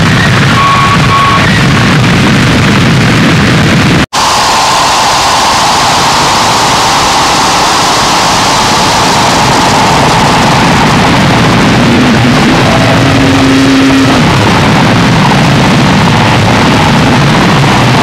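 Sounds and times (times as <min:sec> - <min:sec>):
harsh static noise: 0:00.0 - 0:18.0
low tone: 0:09.6 - 0:17.2.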